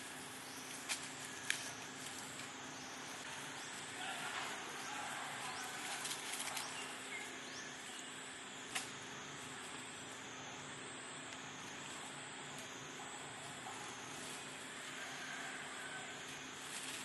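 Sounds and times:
dry leaves rustling: 0:00.0 - 0:10.3, 0:11.6 - 0:17.0.

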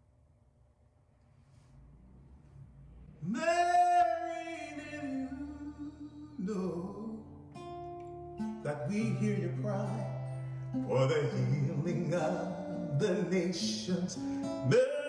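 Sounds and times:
man singing a slow ballad: 0:03.2 - 0:07.6, 0:08.5 - 0:15.0
plucked acoustic guitar: 0:03.4 - 0:15.0.

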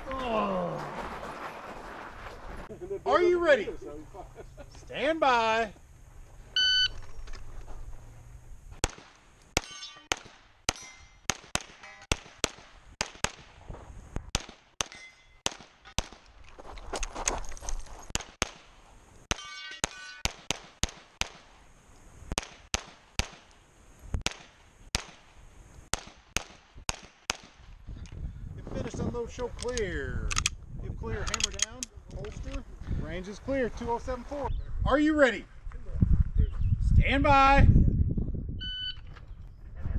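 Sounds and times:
rapid pistol fire: 0:08.8 - 0:10.5, 0:11.3 - 0:13.6, 0:14.3 - 0:16.2, 0:20.2 - 0:21.5, 0:22.3 - 0:23.5, 0:24.2 - 0:25.3, 0:25.9 - 0:27.7
ring of hit steel targets: 0:09.6 - 0:12.2, 0:14.8 - 0:16.0, 0:19.3 - 0:20.3
pistol reloading: 0:31.2 - 0:32.6.

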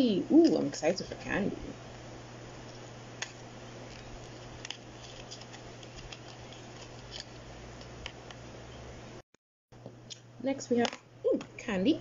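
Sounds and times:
steady low hum: 0:00.0 - 0:12.0
cardboard card clicks and scrapes: 0:03.2 - 0:08.4.

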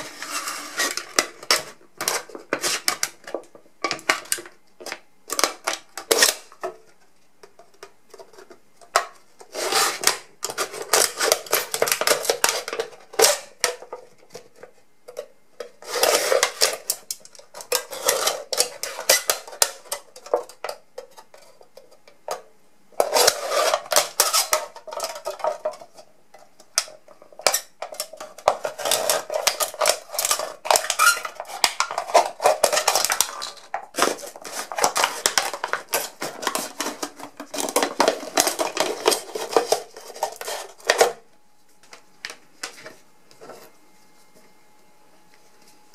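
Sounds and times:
knife cutting metal can: 0:17.6 - 0:20.0, 0:27.4 - 0:41.2.

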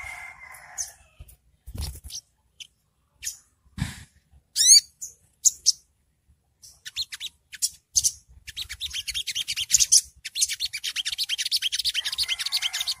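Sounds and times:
sunbird twittering song: 0:06.6 - 0:13.0.

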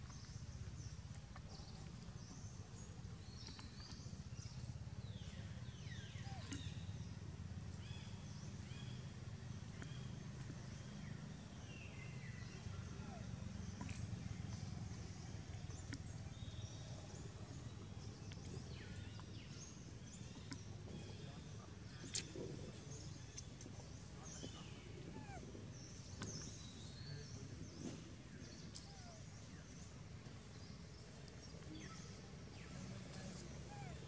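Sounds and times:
faint bird chirps: 0:00.1 - 0:07.2.

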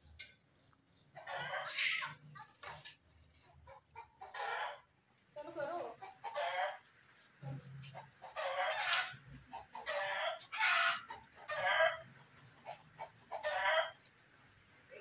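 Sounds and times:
chickens squawking: 0:01.1 - 0:02.8, 0:03.4 - 0:05.0, 0:05.9 - 0:06.9, 0:07.8 - 0:14.0.

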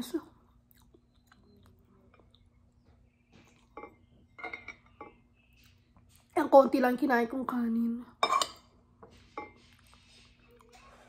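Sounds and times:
faint chewing: 0:00.4 - 0:04.2, 0:09.1 - 0:11.0
spoon clinking on ceramic bowl: 0:03.7 - 0:05.2, 0:08.2 - 0:08.7.

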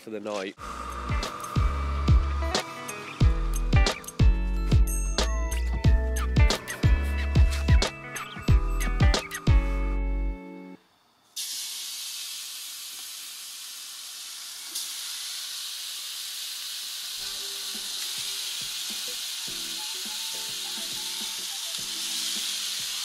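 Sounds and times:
bacon sizzling on a griddle: 0:11.4 - 0:23.0.

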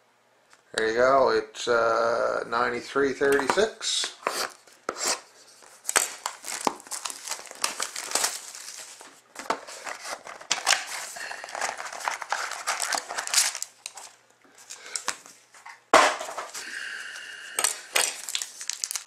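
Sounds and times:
shrink-wrap crinkling and tearing: 0:05.6 - 0:15.3, 0:17.6 - 0:19.0.

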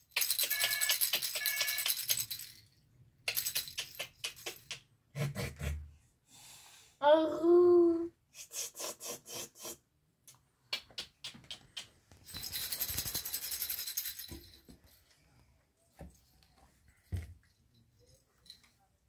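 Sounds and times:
plastic baby rattle shaking: 0:00.0 - 0:02.7, 0:03.3 - 0:04.7, 0:12.2 - 0:14.6.

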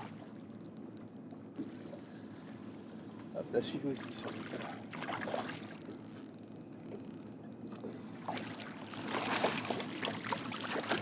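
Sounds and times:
boat engine humming: 0:00.0 - 0:11.0
fish splashing in water: 0:08.2 - 0:11.0.

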